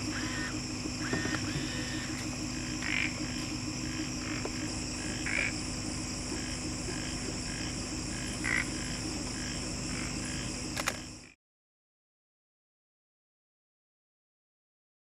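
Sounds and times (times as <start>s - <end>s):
frogs croaking: 0.0s - 11.4s
high-pitched insect drone: 0.0s - 11.4s.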